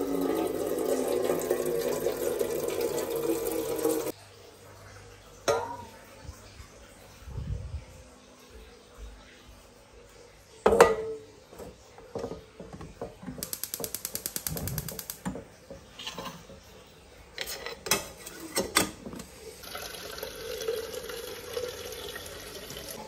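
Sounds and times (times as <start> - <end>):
fast even ticking: 13.4 - 15.2.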